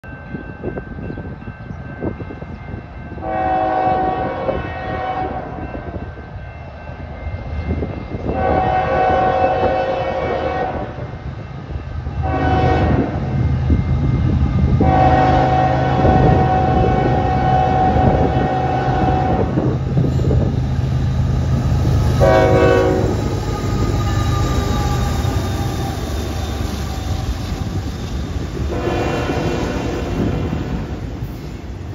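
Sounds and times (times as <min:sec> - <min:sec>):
train wheels rumbling: 0:00.0 - 0:31.9
locomotive horn blasts: 0:03.2 - 0:05.6, 0:08.3 - 0:11.0, 0:12.2 - 0:13.2, 0:14.8 - 0:19.7, 0:22.2 - 0:23.9, 0:28.7 - 0:30.8.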